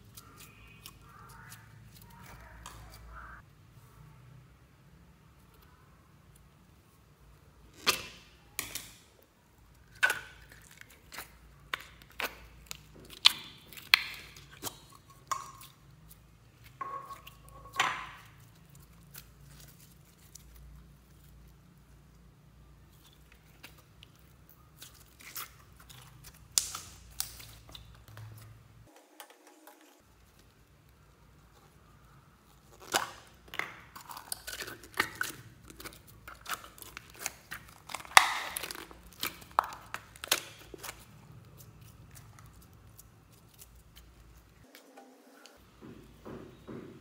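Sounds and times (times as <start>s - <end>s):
slime crackling and popping: 7.8s - 20.8s, 22.9s - 28.4s, 32.4s - 44.5s.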